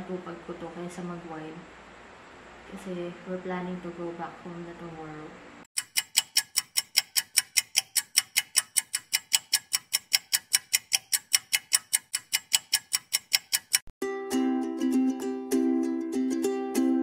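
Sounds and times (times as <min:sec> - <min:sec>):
fast clock ticking: 0:05.8 - 0:13.9.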